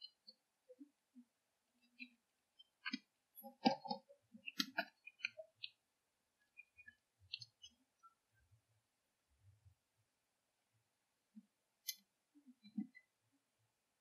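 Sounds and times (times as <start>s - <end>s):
irregular clicks: 1.8s - 5.8s.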